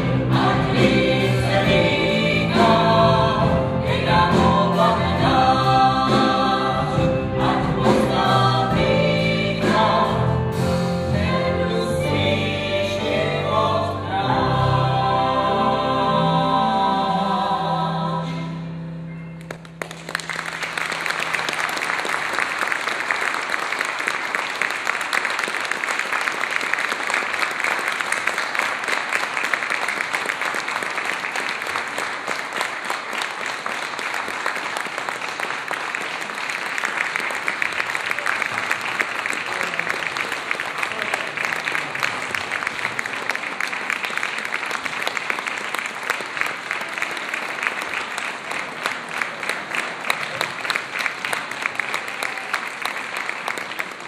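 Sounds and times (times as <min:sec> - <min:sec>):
audience applauding: 0:19.4 - 0:54.0.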